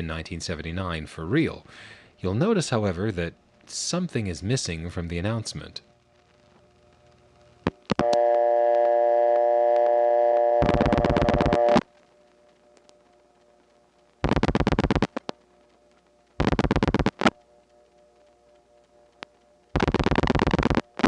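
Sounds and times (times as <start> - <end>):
multi-pitched dial tone: 7.6 - 13.1, 14.2 - 15.4, 16.4 - 21.0
telephone line clicks: 7.9 - 11.8.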